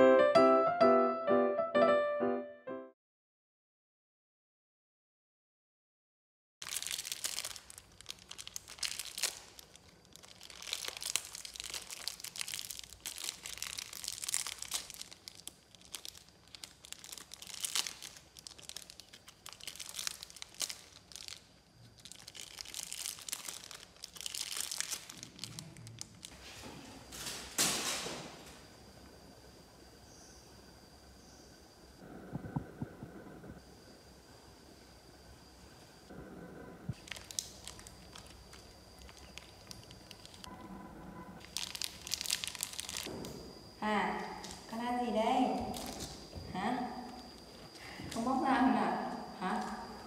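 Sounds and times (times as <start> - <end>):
plastic wrapper crinkling: 6.6 - 26.4, 37.0 - 40.5, 41.4 - 43.3, 45.6 - 46.4.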